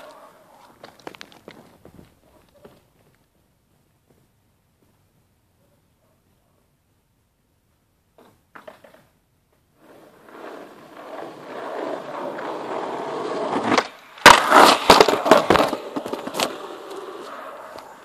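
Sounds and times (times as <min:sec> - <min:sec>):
skateboard wheels rolling on asphalt: 0:00.0 - 0:05.2, 0:08.1 - 0:18.0
skateboard skidding knocks and scraping: 0:08.1 - 0:18.0.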